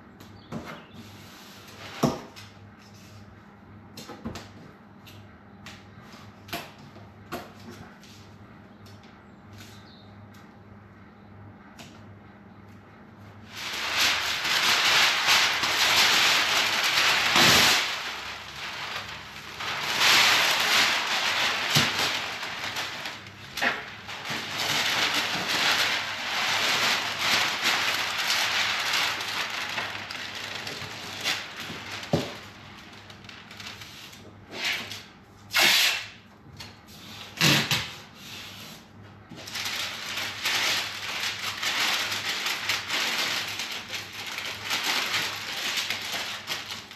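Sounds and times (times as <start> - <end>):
paper rustling and crinkling: 13.4 - 35.1, 36.8 - 46.9
paper tearing: 35.5 - 36.1.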